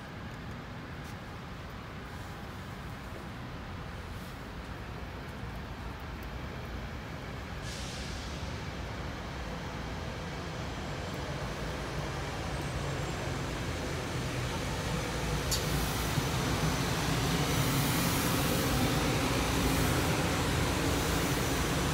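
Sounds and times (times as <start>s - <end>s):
electric train approaching: 7.8s - 21.9s.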